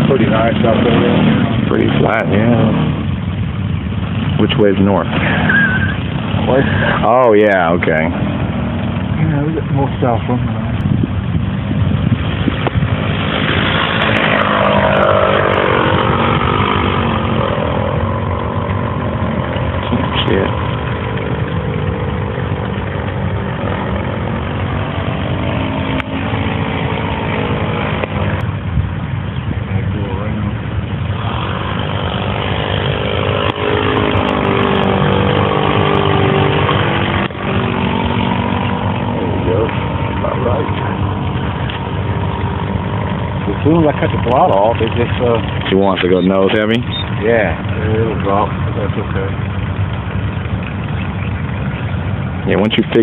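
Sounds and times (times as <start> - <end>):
model airplane propeller buzz: 10.7 - 28.8, 29.5 - 53.0.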